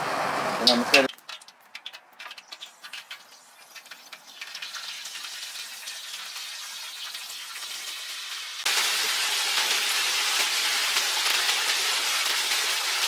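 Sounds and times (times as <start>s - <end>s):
food sizzling in a pan: 1.0s - 13.0s.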